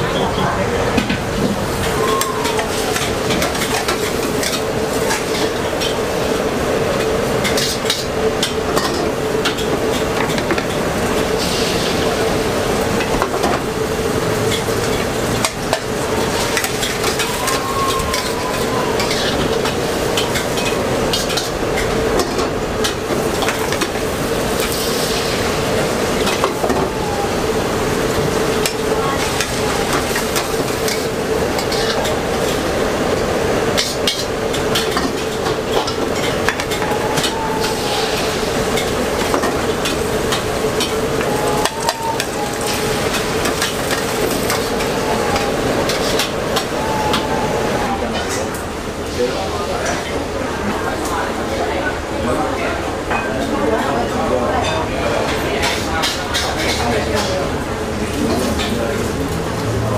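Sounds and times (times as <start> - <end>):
egg sizzling in a wok: 24.4 - 25.7.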